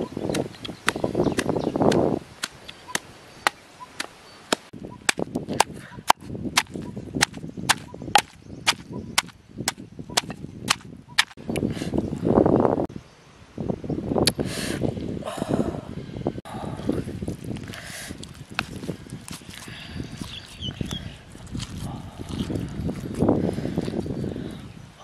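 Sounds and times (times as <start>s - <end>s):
pestle pounding in wooden mortar: 0.3s - 3.6s, 4.5s - 11.4s.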